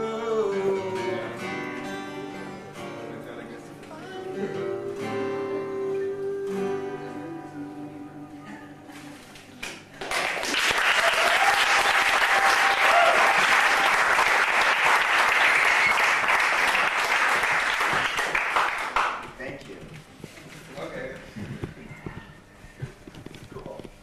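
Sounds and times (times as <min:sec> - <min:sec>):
acoustic guitars playing: 0:00.0 - 0:10.0
audience applause: 0:10.0 - 0:19.3.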